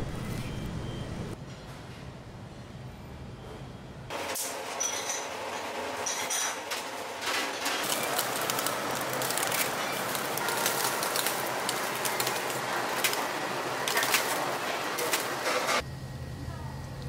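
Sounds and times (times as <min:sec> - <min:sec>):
meat sizzling on a grill: 0:07.8 - 0:15.4.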